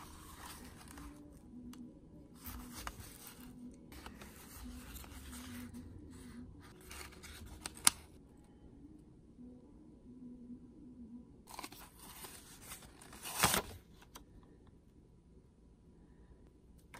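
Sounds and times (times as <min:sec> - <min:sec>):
paper rustling: 0:00.0 - 0:01.3, 0:02.4 - 0:08.2, 0:11.5 - 0:14.2.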